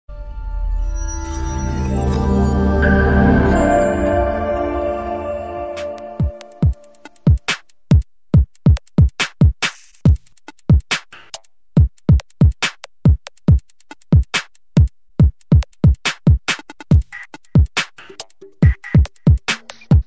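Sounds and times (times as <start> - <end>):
electronic drum-machine music: 1.2 - 7.6, 16.9 - 20.0.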